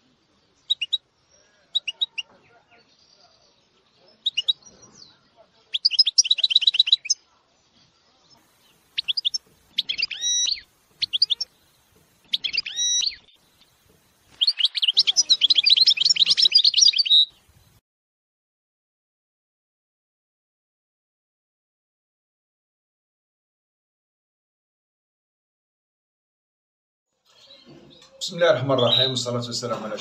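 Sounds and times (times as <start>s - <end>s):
finches singing: 4.1s - 7.2s, 8.3s - 17.8s, 27.3s - 30.0s.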